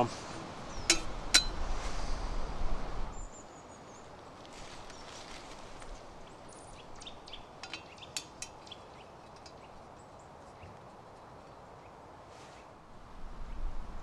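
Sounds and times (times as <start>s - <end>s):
birds chirping: 0.0s - 12.7s
metal kettle handle clinking: 0.9s - 1.6s, 7.0s - 9.6s.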